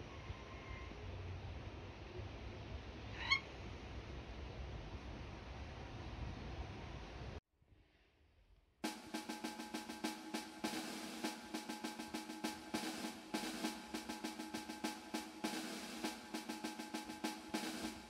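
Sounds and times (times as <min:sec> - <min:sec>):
music with quick drum beat: 0:08.8 - 0:18.0.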